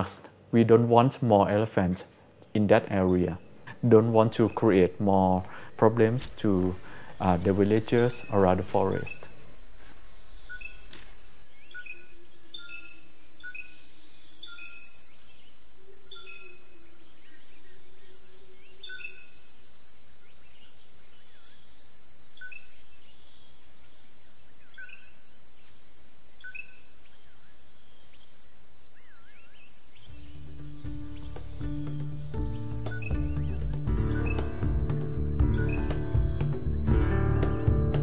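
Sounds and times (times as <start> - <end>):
high-pitched insect chorus: 2.6 - 38.0
bird call notes: 30.1 - 38.0.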